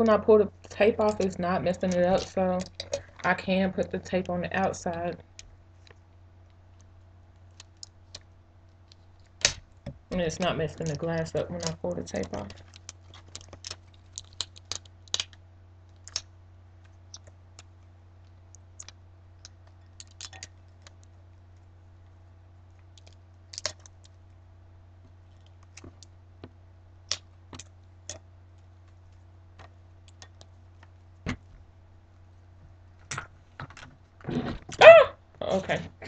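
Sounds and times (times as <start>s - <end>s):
steady low hum: 0.0s - 36.0s
plastic stencil clicks and crinkles: 4.1s - 21.2s, 22.7s - 24.2s.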